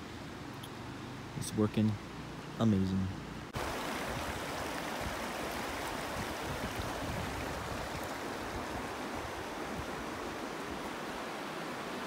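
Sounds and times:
river rushing over rocks: 3.4s - 12.0s.

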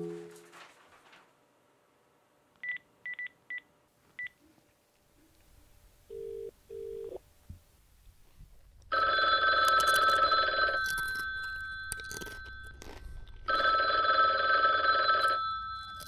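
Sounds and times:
telephone ringing: 6.1s - 7.2s, 8.9s - 12.8s, 13.5s - 16.0s.

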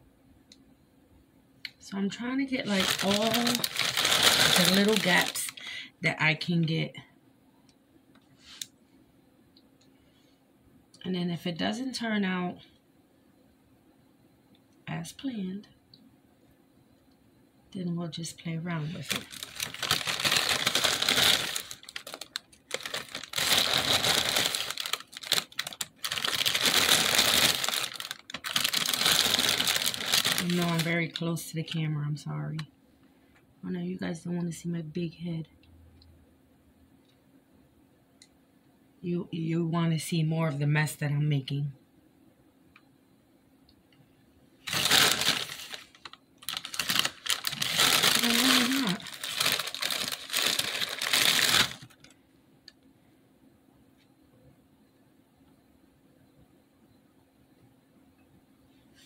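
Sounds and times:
plastic bag crinkling: 2.5s - 5.8s, 18.8s - 31.2s, 44.6s - 52.2s
cereal rattling: 2.6s - 5.6s, 18.9s - 31.0s, 44.7s - 52.1s.

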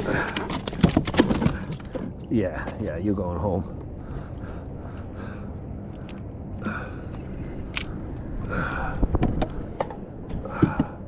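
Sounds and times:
fishing gear knocking and clicking: 0.0s - 2.9s.

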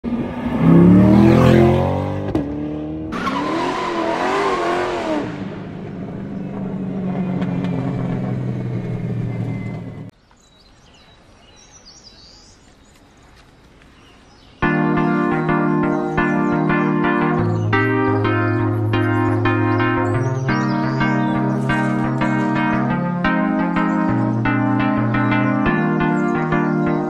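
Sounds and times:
car engine accelerating: 0.0s - 10.1s, 14.6s - 27.0s
high chirps: 14.6s - 27.0s.

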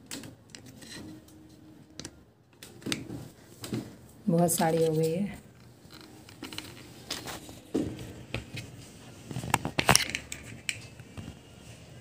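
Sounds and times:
objects clattering: 4.6s - 11.0s.

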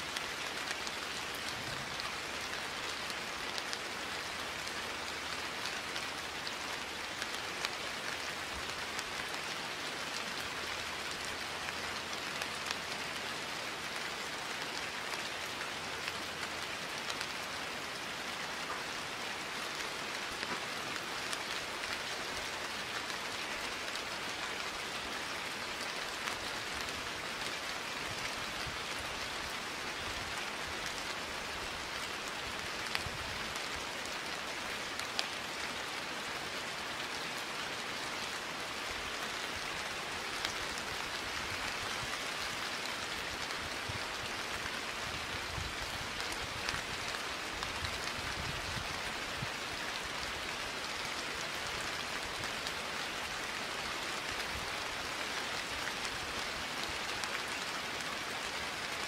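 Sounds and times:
raindrop ticks: 0.1s - 13.0s, 18.4s - 35.6s.

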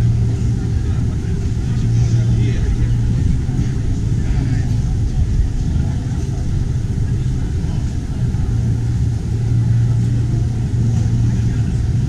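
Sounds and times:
car engine idling: 0.0s - 12.0s
crowd chatter: 0.0s - 12.0s.

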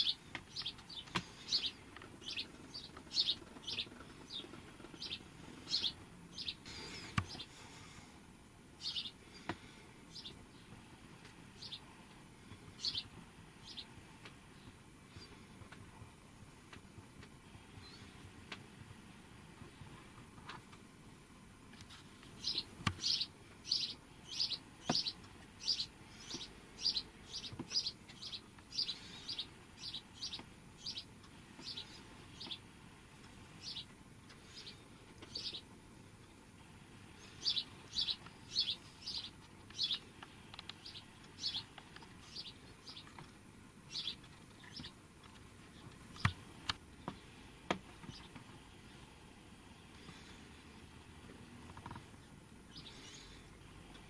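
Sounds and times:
small bird chirping: 0.0s - 7.5s, 8.8s - 9.2s, 10.1s - 10.7s, 11.5s - 11.9s, 12.7s - 14.0s, 22.3s - 32.7s, 33.6s - 35.7s, 37.2s - 43.2s, 43.9s - 45.0s, 52.7s - 53.4s
faint clicks: 39.4s - 42.1s.

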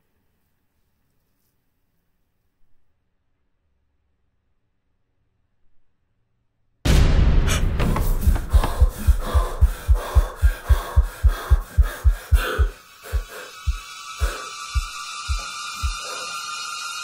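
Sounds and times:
heartbeat pounding: 6.9s - 16.2s
heavy breathing: 7.5s - 16.5s.

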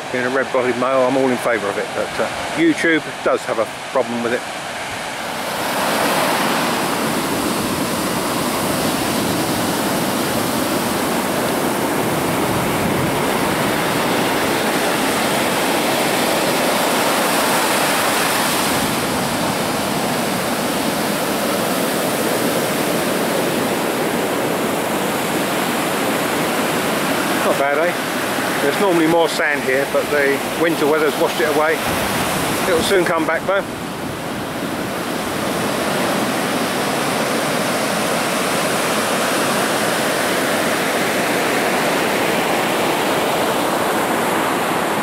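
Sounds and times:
heavy surf breaking: 0.0s - 45.0s.

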